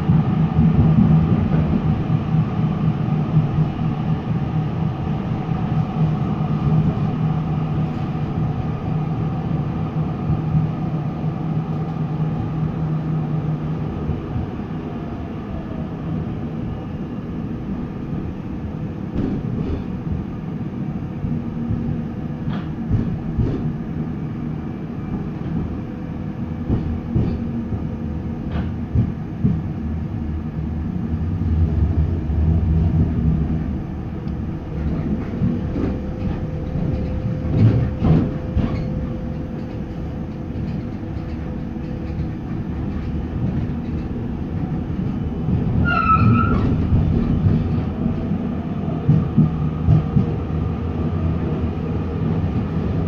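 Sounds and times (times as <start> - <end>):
wheels rumbling on track: 0.0 - 53.0
wheels clacking over rails: 34.7 - 48.2.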